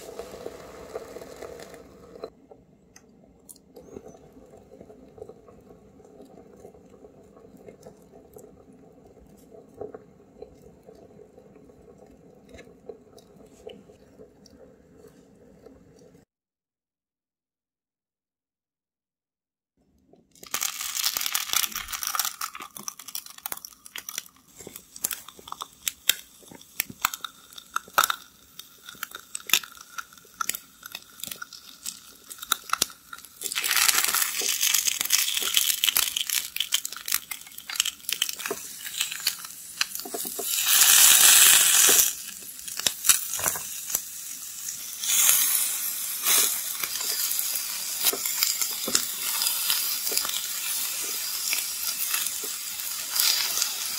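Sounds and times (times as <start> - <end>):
fish sizzling on griddle: 0.0 - 2.3, 20.5 - 53.9.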